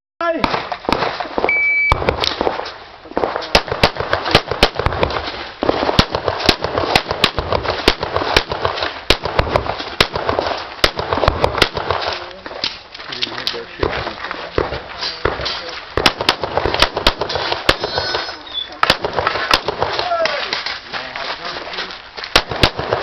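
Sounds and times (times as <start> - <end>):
rapid pistol fire: 0.4 - 12.2, 13.8 - 18.2, 18.8 - 20.1, 22.3 - 23.0
shot timer beep: 1.5 - 2.0.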